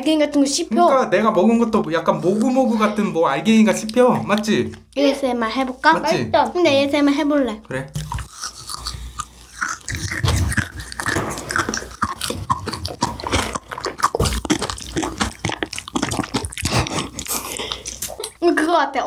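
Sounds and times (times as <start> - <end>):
wet chewing and biting: 7.9 - 18.4
crackly crunches of jelly: 8.0 - 18.4.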